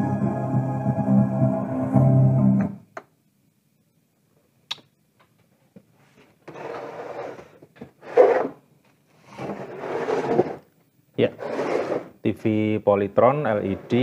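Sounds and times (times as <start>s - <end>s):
plastic stand scraping on wood: 6.5s - 8.6s, 9.2s - 10.7s, 11.4s - 12.2s.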